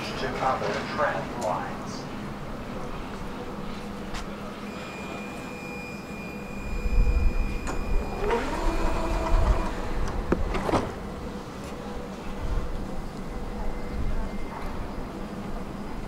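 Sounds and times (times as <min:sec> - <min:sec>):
steady high whine: 0:00.0 - 0:16.0
traction motor whine: 0:04.6 - 0:14.9
tram wheels rumbling on rails: 0:06.7 - 0:16.0.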